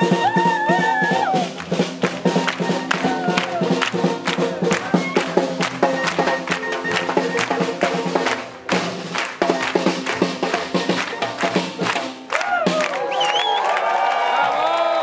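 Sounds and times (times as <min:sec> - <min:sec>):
people clapping along: 0:00.0 - 0:15.0
upbeat swing jazz music: 0:01.6 - 0:12.2.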